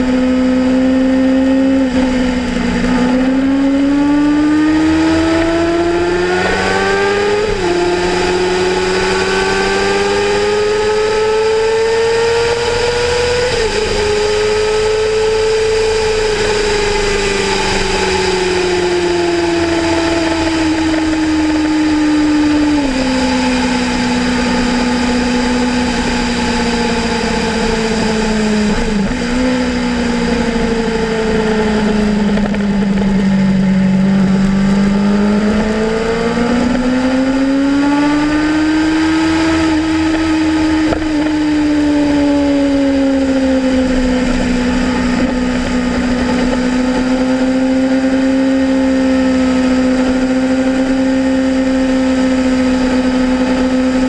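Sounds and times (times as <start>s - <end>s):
motorcycle engine revving: 0.0s - 54.0s
wind rush: 12.5s - 37.6s.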